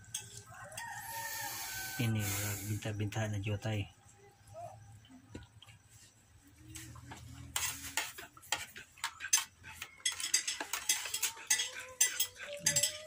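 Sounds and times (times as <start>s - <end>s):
small hard objects clinking: 7.4s - 13.0s.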